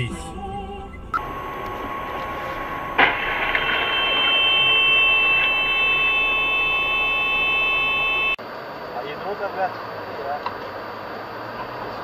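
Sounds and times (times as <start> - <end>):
steady high whine: 0.4 - 10.2
high ringing tones: 0.9 - 8.4.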